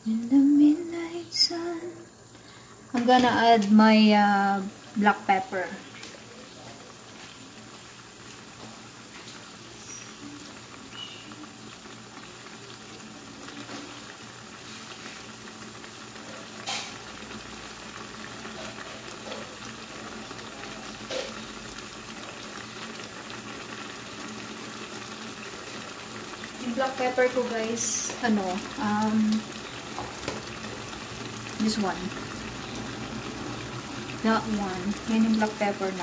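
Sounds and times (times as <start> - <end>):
broth boiling and bubbling: 2.0 - 36.0.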